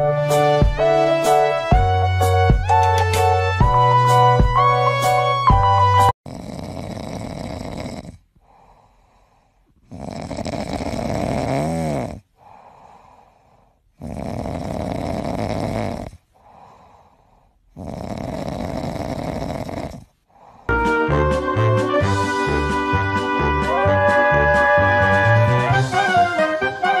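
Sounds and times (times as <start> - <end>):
cat snoring: 6.3 - 20.7
cat breathing: 6.4 - 11.4, 12.3 - 20.7.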